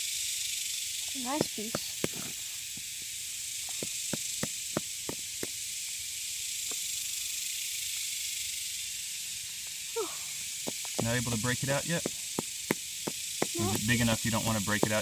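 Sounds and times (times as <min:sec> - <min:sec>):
high hiss: 0:00.0 - 0:15.0
hammer tapping limestone: 0:01.4 - 0:02.3, 0:12.0 - 0:15.0.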